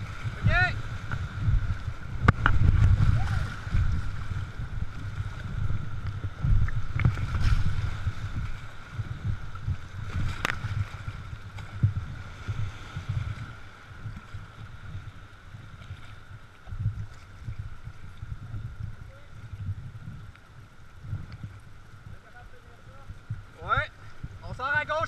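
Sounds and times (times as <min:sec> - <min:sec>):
whitewater rushing and splashing: 0:00.0 - 0:16.7
wind rumble on microphone: 0:00.0 - 0:25.0.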